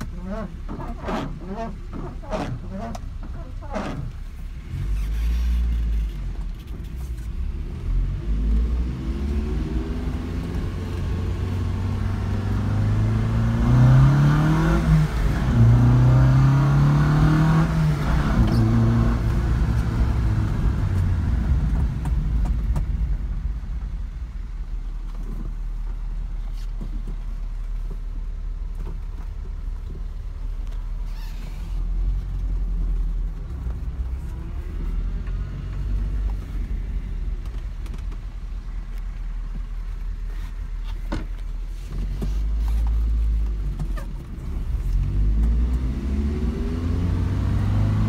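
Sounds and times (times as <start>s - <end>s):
car engine revving while driving: 7.3s - 24.0s, 31.9s - 38.5s, 41.9s - 48.0s.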